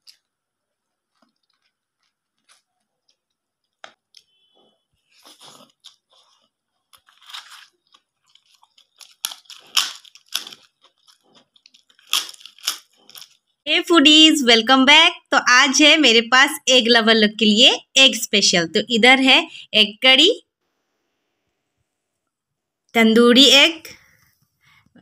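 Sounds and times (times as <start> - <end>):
person chewing crunchy food: 0.0 - 13.6.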